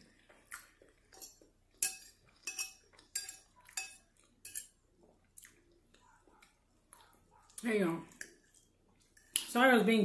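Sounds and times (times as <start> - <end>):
fork clinking on a plate: 1.1 - 4.8.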